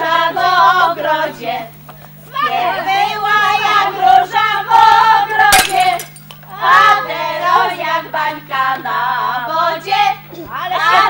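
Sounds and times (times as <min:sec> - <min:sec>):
steady low hum: 0:00.0 - 0:11.0
women singing folk song: 0:00.0 - 0:11.0
sharp crack: 0:05.5 - 0:06.4.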